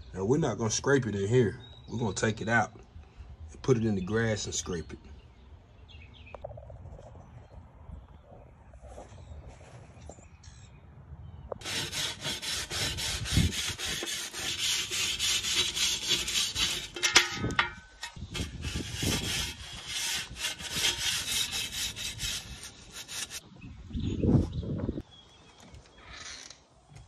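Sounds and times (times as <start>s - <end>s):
brush scraping metal: 11.6s - 23.4s.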